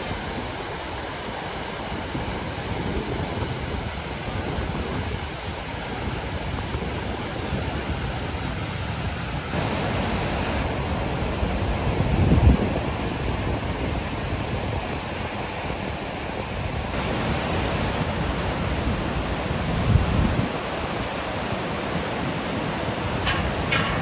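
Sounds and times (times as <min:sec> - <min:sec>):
steady rain falling: 0:00.0 - 0:24.0
wind rumble on microphone: 0:00.0 - 0:24.0.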